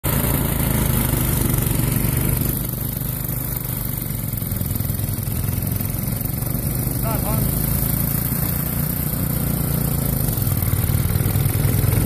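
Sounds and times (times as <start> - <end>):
snowblower engine running: 0.0 - 12.0.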